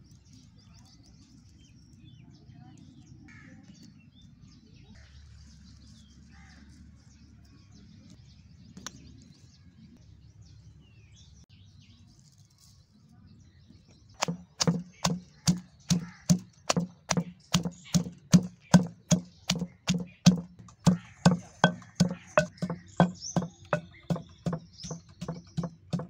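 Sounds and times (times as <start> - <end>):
pestle pounding in stone mortar: 14.2 - 26.0.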